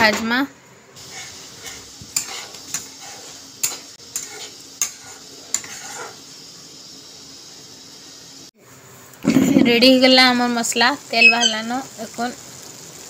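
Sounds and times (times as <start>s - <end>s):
oil sizzling: 0.6s - 13.0s
spatula scraping and tapping a pan: 1.0s - 6.2s.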